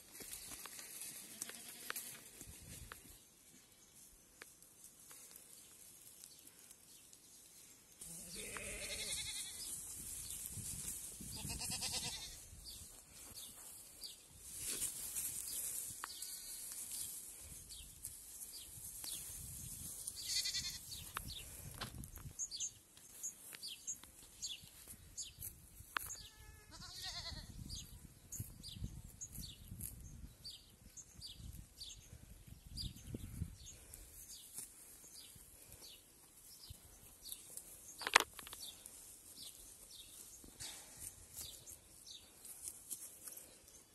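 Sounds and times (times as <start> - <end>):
goats bleating: 8.0 - 9.7, 11.4 - 12.4, 20.2 - 20.9, 26.2 - 27.5.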